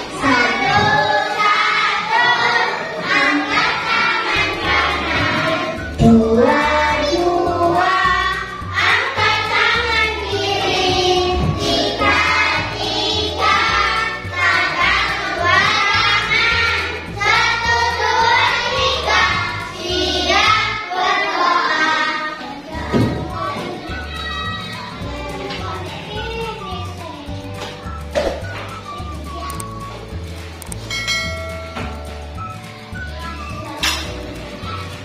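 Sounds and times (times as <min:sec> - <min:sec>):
children singing in unison: 0:00.0 - 0:25.6
music with stepping bass line: 0:04.4 - 0:20.6, 0:27.4 - 0:33.8.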